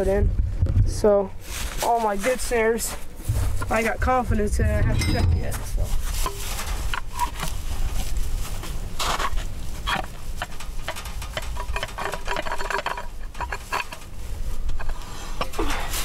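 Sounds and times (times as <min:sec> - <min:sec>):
wind on microphone: 0:00.0 - 0:01.1, 0:03.2 - 0:06.2.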